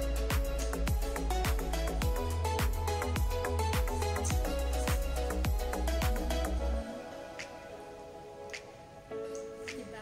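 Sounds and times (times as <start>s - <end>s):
kick drum: 0.0s - 6.6s
held chords: 0.0s - 10.0s.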